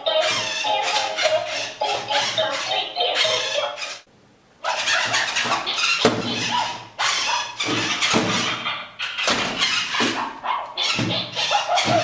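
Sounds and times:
robot toy electronic sound effects: 0:00.0 - 0:04.1, 0:10.8 - 0:12.0.

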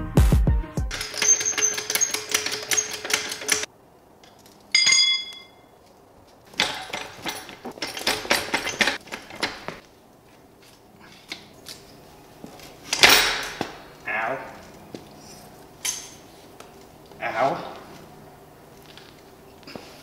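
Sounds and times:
rapid metallic clicking and rattling: 0:00.9 - 0:03.7, 0:06.5 - 0:09.8
ringing metal clink: 0:00.9 - 0:05.8.

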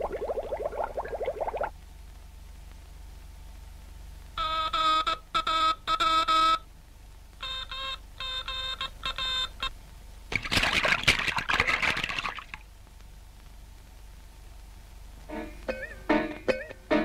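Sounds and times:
bodies splashing into water: 0:10.3 - 0:12.6.

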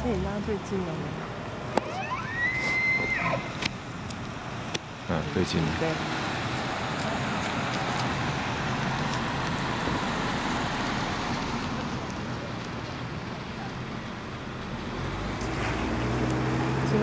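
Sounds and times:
car passing close by: 0:14.7 - 0:17.0.

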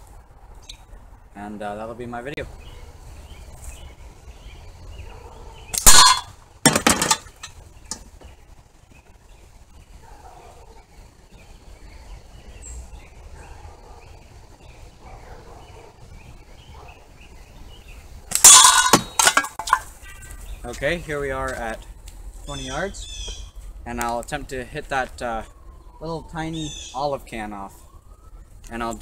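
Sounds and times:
metallic clang of can hit: 0:05.8 - 0:07.5, 0:18.3 - 0:19.9
can clattering down: 0:05.8 - 0:07.6, 0:18.3 - 0:19.9.

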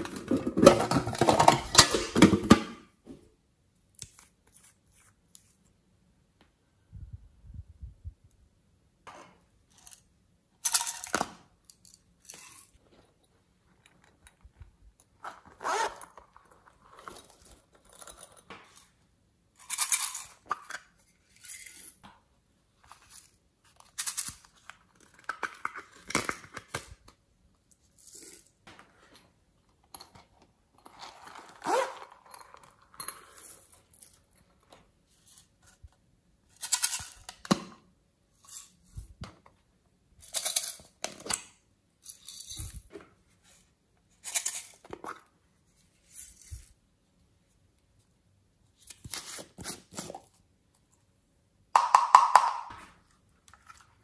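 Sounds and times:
plastic containers clicking: 0:51.8 - 0:52.8.

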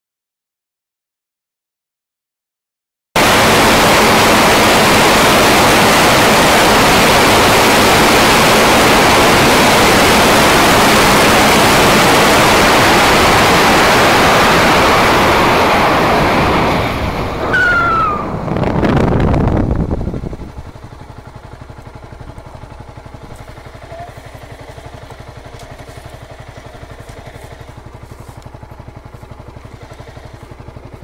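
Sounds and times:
wind rush over microphone: 0:03.2 - 0:21.0
short falling whine: 0:03.2 - 0:30.7.

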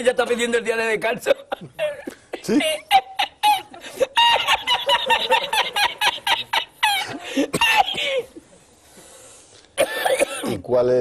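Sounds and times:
person laughing hard: 0:01.6 - 0:08.3.

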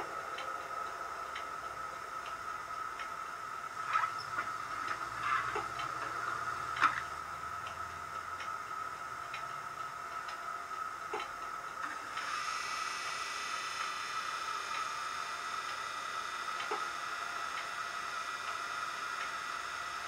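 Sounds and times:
low hum: 0:00.0 - 0:12.3
higher multi-tone whine: 0:00.0 - 0:20.0
steady electrical whine: 0:00.0 - 0:20.0.

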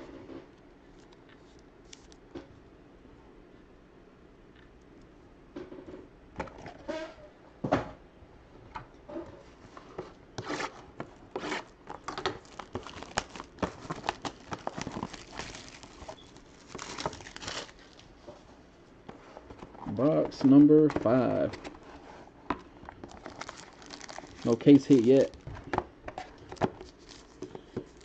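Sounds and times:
plastic wrapping tearing and crinkling: 0:11.3 - 0:18.2, 0:22.9 - 0:25.6, 0:26.2 - 0:28.0.

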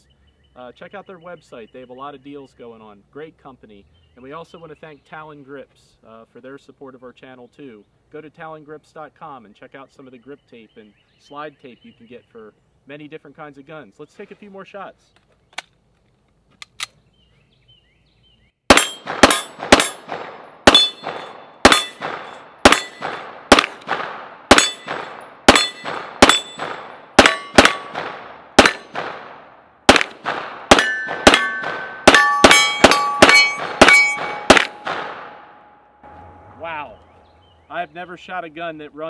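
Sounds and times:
steel targets ringing: 0:18.7 - 0:20.1, 0:20.7 - 0:23.8, 0:24.5 - 0:28.0, 0:30.7 - 0:36.6
rapid pistol fire: 0:18.7 - 0:35.5.

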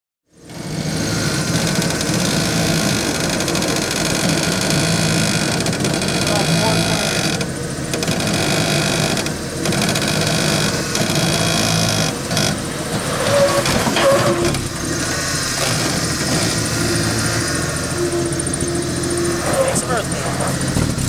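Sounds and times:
truck engine running at low speed: 0:00.3 - 0:21.0
short high-pitched squeaks: 0:13.1 - 0:14.7, 0:15.6 - 0:20.8.

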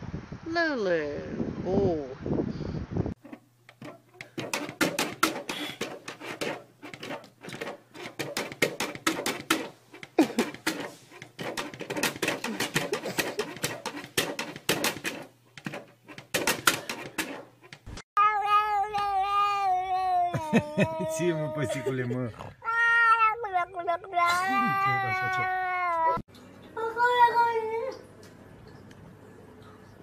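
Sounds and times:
rapid clicks taps and rattles: 0:03.2 - 0:17.9.

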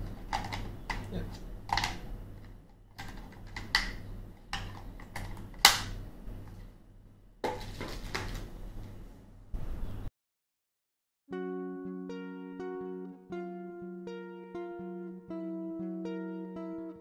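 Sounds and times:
plastic clicks and knocks: 0:00.0 - 0:05.9
low steady hum: 0:00.0 - 0:10.1.

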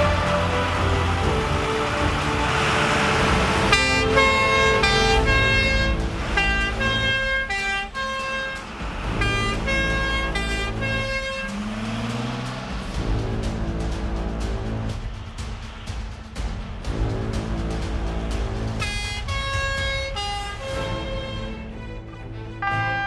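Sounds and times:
fire engine two-tone horn: 0:00.0 - 0:12.2, 0:17.5 - 0:21.8, 0:22.6 - 0:23.0.

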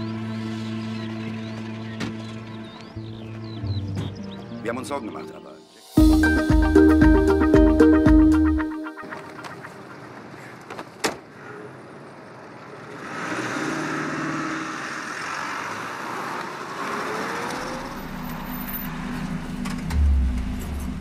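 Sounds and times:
vehicle engine whine and drone: 0:00.0 - 0:03.6, 0:11.4 - 0:21.0.

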